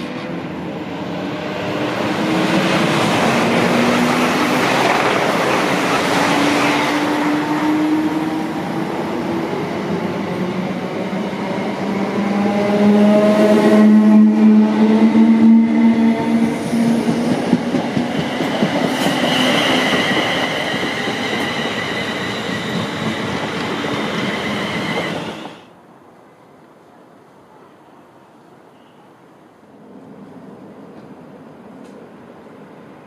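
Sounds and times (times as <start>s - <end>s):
train wheels rushing on rail: 0.0s - 25.7s.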